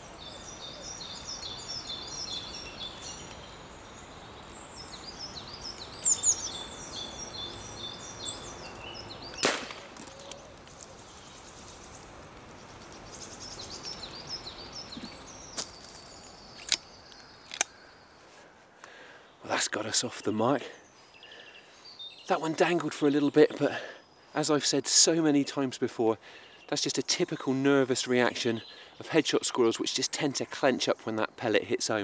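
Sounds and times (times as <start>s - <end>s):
small birds singing: 0.0s - 32.0s
air rifle shot crack: 9.4s - 10.0s.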